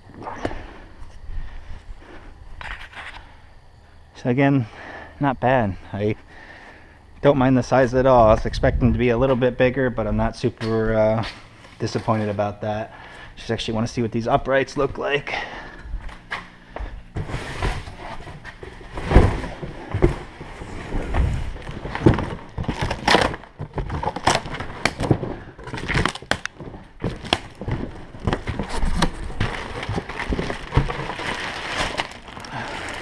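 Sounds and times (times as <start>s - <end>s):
plastic bag crinkling: 20.6s - 33.0s
cardboard box handled and opened: 27.0s - 33.0s.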